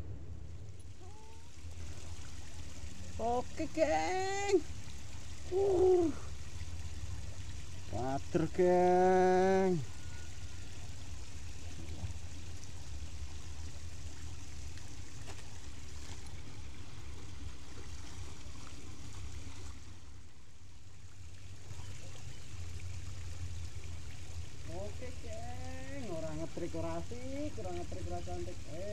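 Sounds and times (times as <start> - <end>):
creek water trickling over rocks: 0.0 - 28.9
low water rumble: 0.0 - 28.9.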